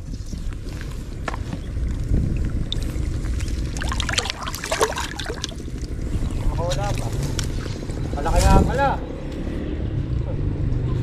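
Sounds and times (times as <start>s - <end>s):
steady low rumble: 0.0s - 8.3s
water sloshing and splashing: 0.8s - 8.0s.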